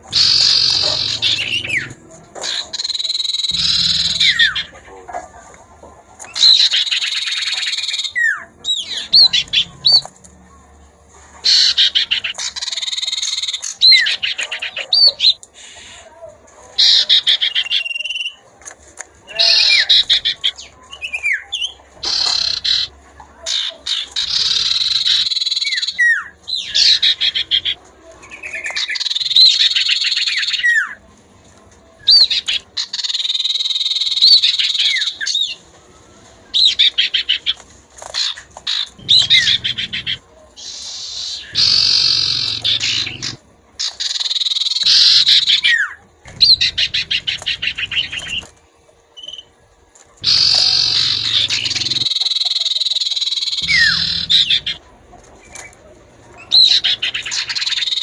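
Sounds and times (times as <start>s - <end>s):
bird harsh buzzing chatters: 0.1s - 4.7s, 22.0s - 22.9s, 23.5s - 26.0s, 38.2s - 48.5s, 50.2s - 54.8s.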